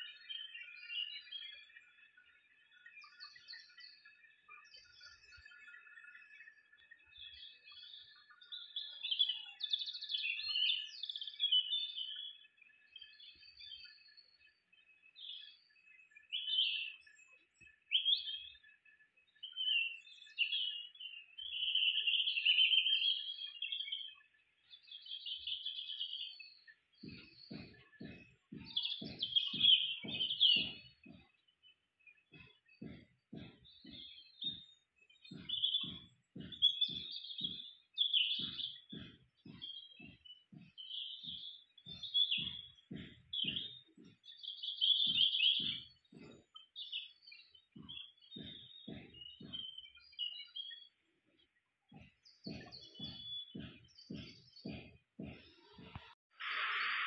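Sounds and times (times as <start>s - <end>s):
birds chirping and singing: 0.0s - 57.0s
soft low thumps: 27.0s - 31.4s, 32.2s - 50.4s, 51.9s - 56.2s.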